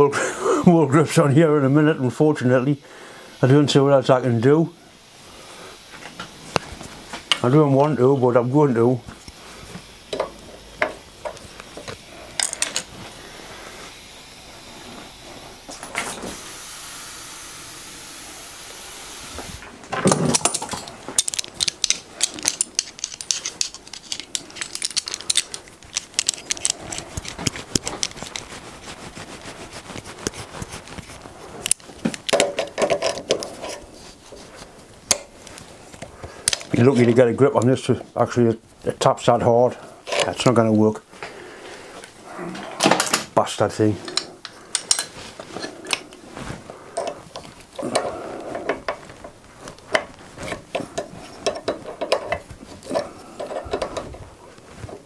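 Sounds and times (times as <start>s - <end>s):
steady hiss: 0.0s - 55.0s
metal hand tools clinking: 10.1s - 12.9s, 20.0s - 28.5s, 44.0s - 46.2s, 46.9s - 54.1s.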